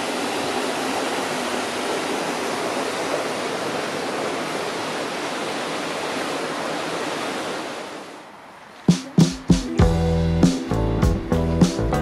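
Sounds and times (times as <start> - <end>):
flowing water rushing: 0.0 - 9.8.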